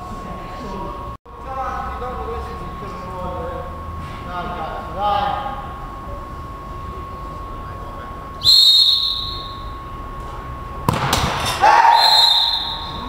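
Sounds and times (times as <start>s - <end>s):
referee whistle blast: 8.4s - 9.8s, 11.8s - 13.0s
ball kicked with thud: 10.8s - 11.6s.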